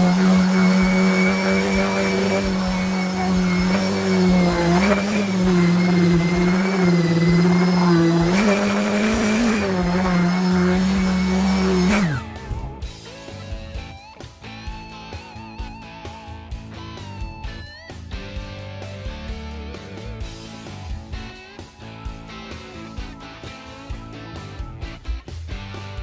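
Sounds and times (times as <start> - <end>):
orbital sander on wood: 0.0 - 13.4.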